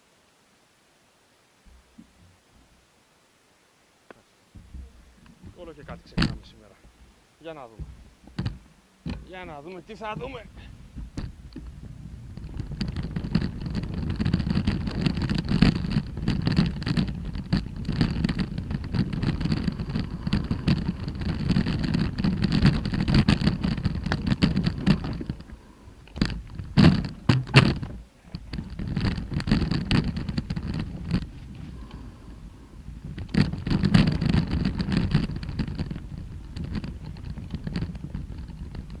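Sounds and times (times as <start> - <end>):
bike rattling: 4.6 - 39.0
tyres crunching over gravel: 9.2 - 32.1.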